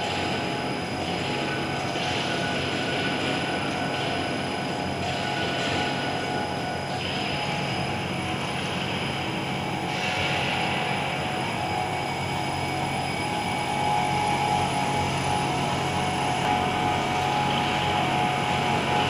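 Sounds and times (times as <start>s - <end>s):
machinery drone: 7.4s - 19.0s
machine whining tones: 9.8s - 19.0s.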